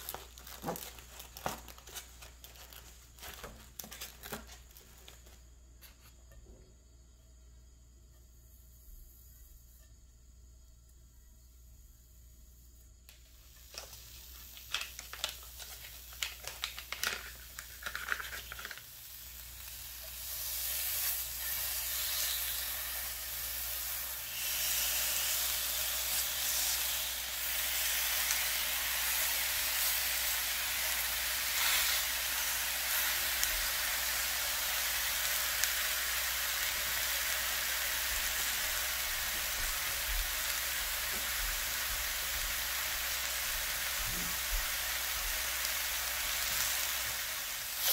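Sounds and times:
sausages and bacon sizzling: 0:00.0 - 0:06.0, 0:13.1 - 0:47.9.

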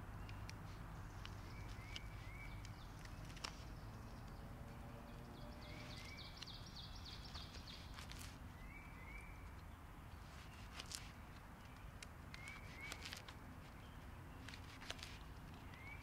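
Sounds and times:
small birds chirping: 0:00.0 - 0:16.0.

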